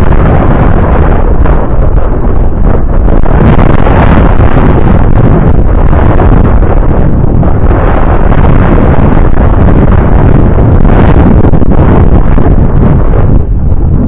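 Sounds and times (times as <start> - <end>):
wind blasting microphone: 0.0 - 14.0.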